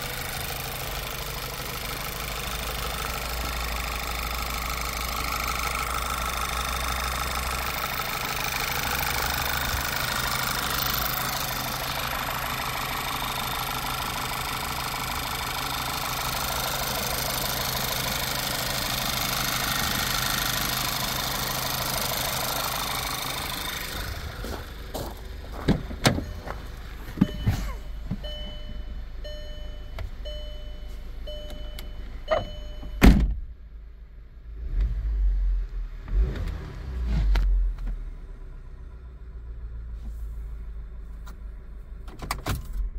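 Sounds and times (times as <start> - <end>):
car engine idling: 0.0 - 34.8, 37.3 - 42.2
car door shutting: 25.6 - 29.0, 32.3 - 33.5
short electronic beeps: 26.2 - 33.1.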